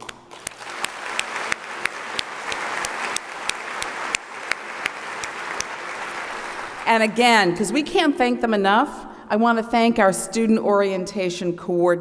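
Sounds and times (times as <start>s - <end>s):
person clapping close by: 0.0s - 6.9s
audience applauding: 0.0s - 7.2s.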